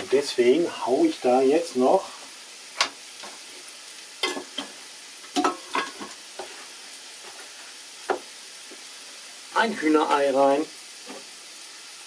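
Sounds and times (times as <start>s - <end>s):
vegetables sizzling in a pan: 0.0s - 12.0s
fat popping and crackling: 2.7s - 3.4s.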